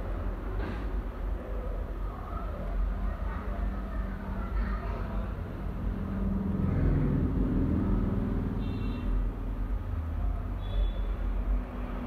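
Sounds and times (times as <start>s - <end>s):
low hum rising: 5.5s - 8.6s.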